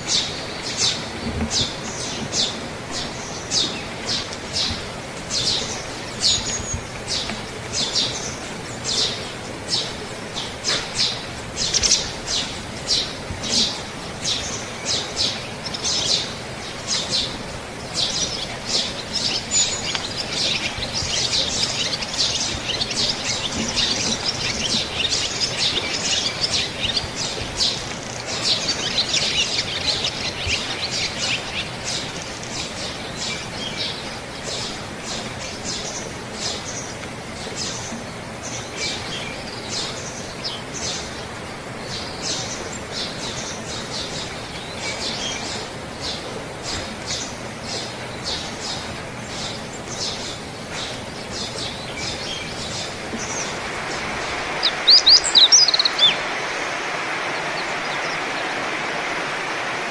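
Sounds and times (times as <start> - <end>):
songbirds chirping: 0.0 - 59.9.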